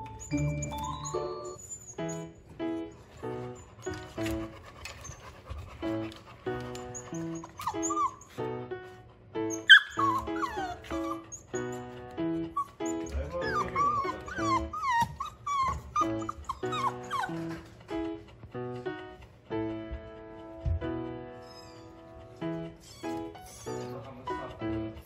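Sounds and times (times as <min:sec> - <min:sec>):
puppy yelp: 0:00.0 - 0:02.4, 0:06.7 - 0:08.4, 0:09.5 - 0:17.7, 0:21.4 - 0:24.6
background music with light notes: 0:00.0 - 0:25.0
puppy whining: 0:00.0 - 0:25.0.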